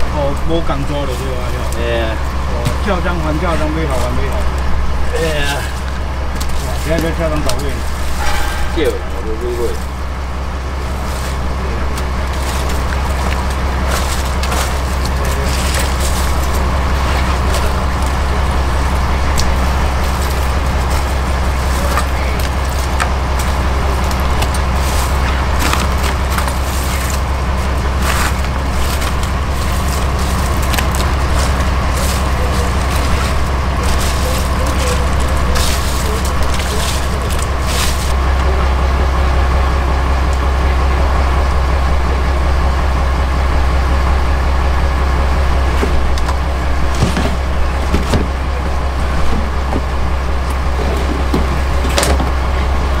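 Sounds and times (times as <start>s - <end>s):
boat engine droning: 0.0s - 53.0s
fish and ice rattling: 9.2s - 38.2s.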